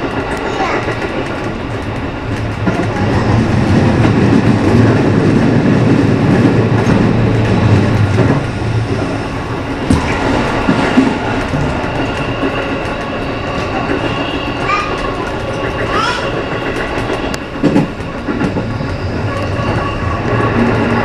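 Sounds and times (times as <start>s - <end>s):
passing train: 0.0s - 21.0s
train wheel and rail clickety-clack: 0.0s - 21.0s.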